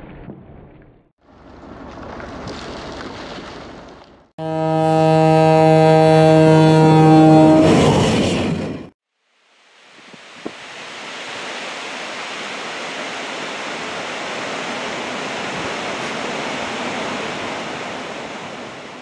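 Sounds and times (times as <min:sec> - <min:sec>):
waterfall rushing: 0:09.6 - 0:19.0.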